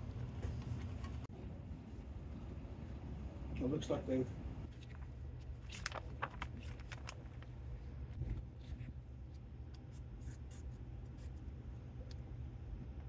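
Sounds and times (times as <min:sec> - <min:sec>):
low steady hum: 0:00.0 - 0:13.0
plastic sheeting crinkling: 0:05.6 - 0:07.6.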